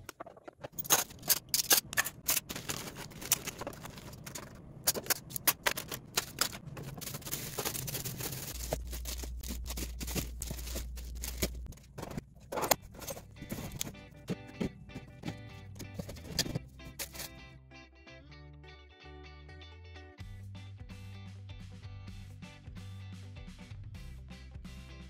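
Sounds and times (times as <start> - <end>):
plastic cutlery clattering: 0.0 - 17.4
low hum: 0.6 - 17.4.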